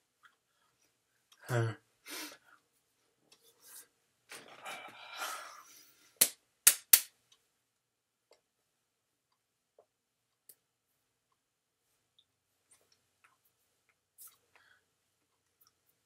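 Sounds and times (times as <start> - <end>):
hands clapping: 6.2 - 7.1.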